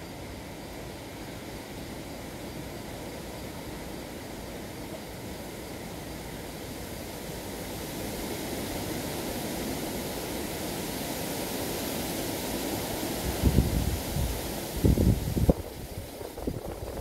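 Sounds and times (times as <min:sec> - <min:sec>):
wind gusts buffeting microphone: 0:13.2 - 0:17.0
wind on microphone: 0:13.2 - 0:17.0.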